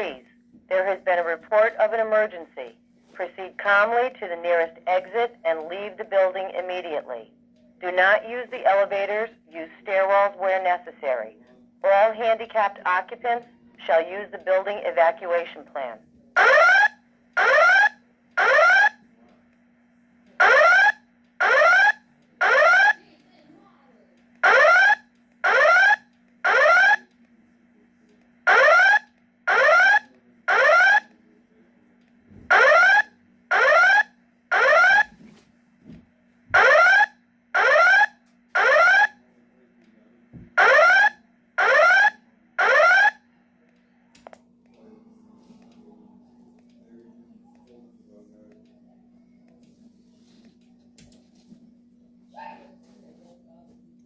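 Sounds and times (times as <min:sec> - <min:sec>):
faint steady hum: 0:00.0 - 0:54.0
evacuation alarm rising sweeps: 0:16.4 - 0:19.0, 0:20.4 - 0:23.0, 0:24.4 - 0:27.1, 0:28.4 - 0:31.1, 0:32.5 - 0:35.1, 0:36.6 - 0:39.2, 0:40.6 - 0:43.2.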